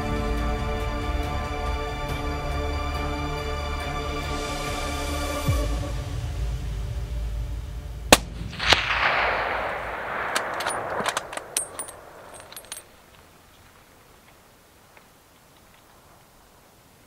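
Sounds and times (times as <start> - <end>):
rifle shot echoing: 8.1 - 13.4
rifle bolt metallic clicks: 8.6 - 13.6.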